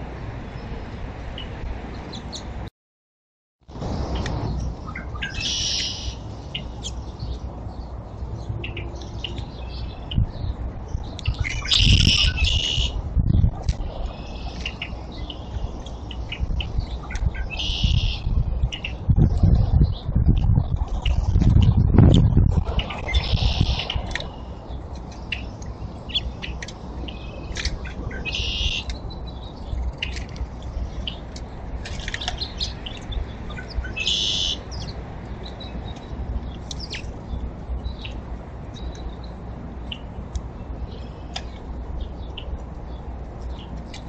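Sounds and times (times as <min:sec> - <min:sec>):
steady low rumble: 0:03.7 - 0:44.0
songbirds chirping: 0:03.9 - 0:21.3, 0:22.4 - 0:44.0
buzzy bird call: 0:04.9 - 0:06.2, 0:11.6 - 0:13.0, 0:22.8 - 0:24.5, 0:33.6 - 0:34.7.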